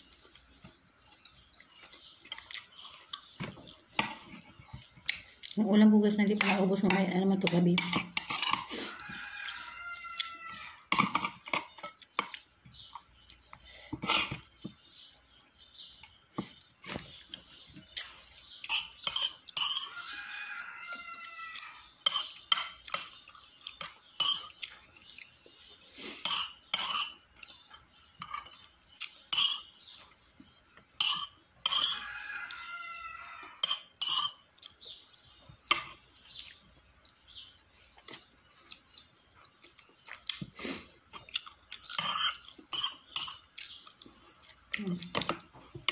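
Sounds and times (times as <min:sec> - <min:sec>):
spoon clinking against plates: 0:06.4 - 0:08.7, 0:10.2 - 0:12.4, 0:18.6 - 0:20.1, 0:22.0 - 0:23.2, 0:23.8 - 0:24.6, 0:26.2 - 0:27.5, 0:28.2 - 0:28.7, 0:29.3 - 0:29.8, 0:30.9 - 0:32.1, 0:33.6 - 0:34.5, 0:41.8 - 0:43.8
rooster crowing: 0:08.8 - 0:10.9, 0:19.8 - 0:21.9, 0:31.8 - 0:33.6.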